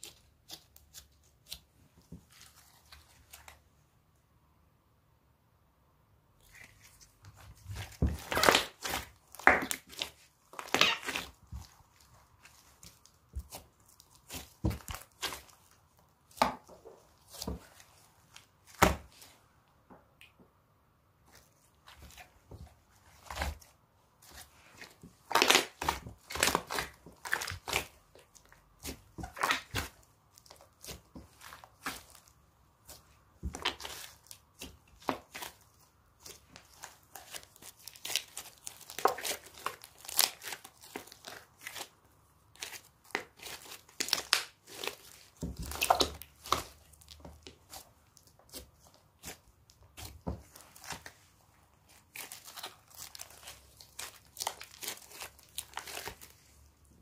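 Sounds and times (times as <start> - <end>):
sticky slime crackles and pops: 6.5 - 17.8, 24.2 - 51.2, 51.9 - 56.6.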